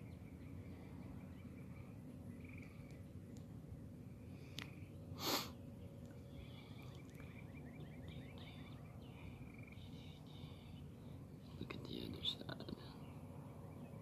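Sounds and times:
person sniffing: 0:05.2 - 0:05.6.

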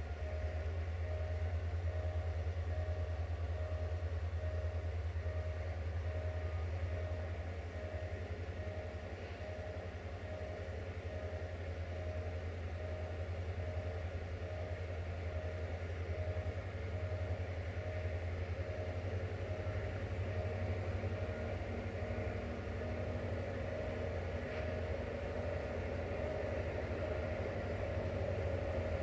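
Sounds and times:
level crossing warning tone: 0:00.0 - 0:29.0
train diesel engine rumble: 0:00.0 - 0:29.0.

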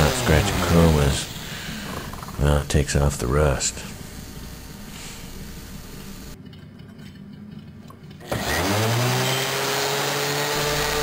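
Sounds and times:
orbital sander humming: 0:00.0 - 0:01.8, 0:08.3 - 0:11.0.

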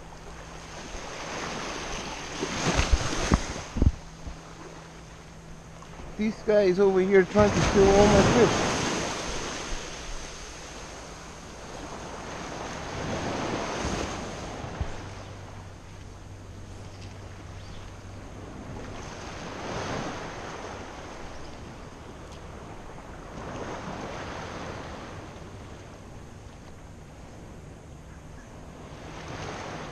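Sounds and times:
small waves lapping: 0:00.0 - 0:27.6, 0:28.4 - 0:29.9
wind on microphone: 0:00.8 - 0:04.5.

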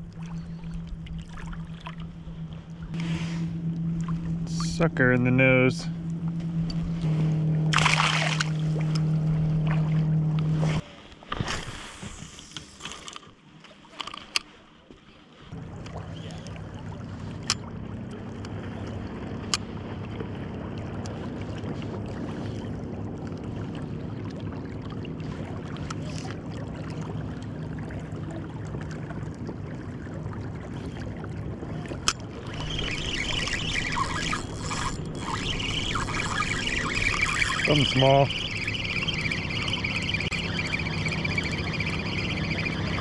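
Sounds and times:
low hum: 0:00.0 - 0:10.9, 0:15.5 - 0:43.0.

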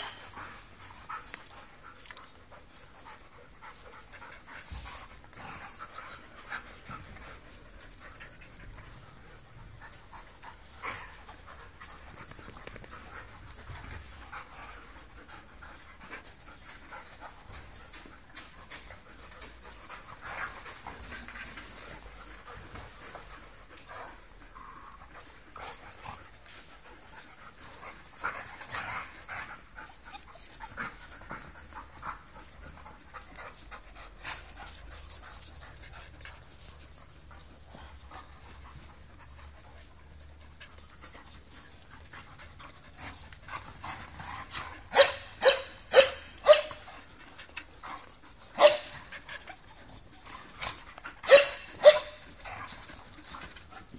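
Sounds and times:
dogs panting: 0:00.0 - 0:53.9
dog play barks: 0:44.5 - 0:47.0, 0:48.5 - 0:49.2, 0:51.2 - 0:52.8.

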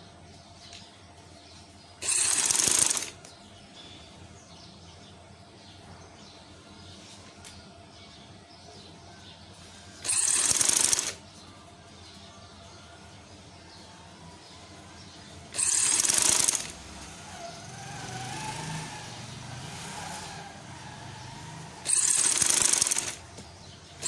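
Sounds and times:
sewing machine stitching: 0:02.0 - 0:03.2, 0:10.0 - 0:11.2, 0:15.5 - 0:16.9, 0:21.6 - 0:23.3.

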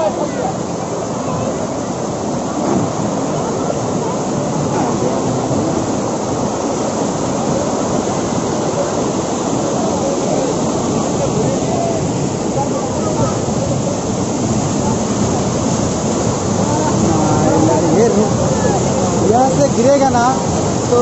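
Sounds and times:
river water rushing over rocks: 0:00.0 - 0:21.0.

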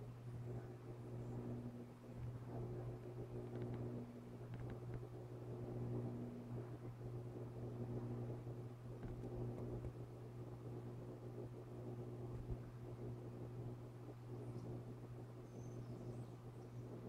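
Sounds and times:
low mechanical hum: 0:00.0 - 0:17.0
faint ticks: 0:03.4 - 0:05.1, 0:09.0 - 0:10.0.

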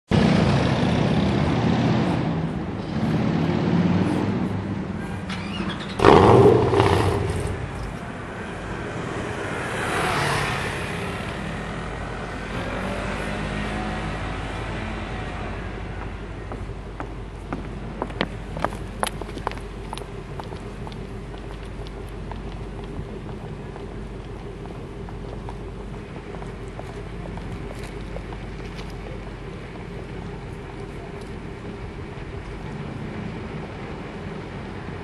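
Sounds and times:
loud engine burst: 0:05.2 - 0:07.8
car engine idling: 0:15.9 - 0:35.0.

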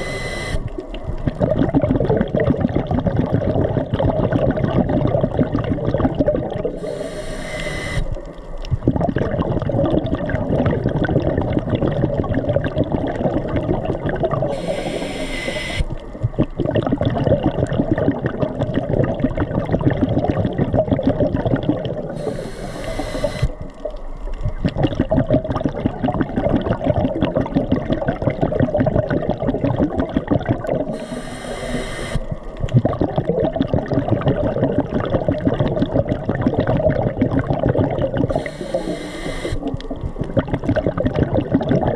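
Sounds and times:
underwater crackling hiss: 0:00.0 - 0:01.2, 0:05.4 - 0:08.5, 0:13.4 - 0:16.4, 0:21.8 - 0:25.1, 0:30.5 - 0:33.3, 0:38.0 - 0:41.2
diver breathing: 0:06.8 - 0:08.1, 0:14.5 - 0:15.9, 0:22.2 - 0:23.5, 0:30.9 - 0:32.2, 0:38.3 - 0:39.6.

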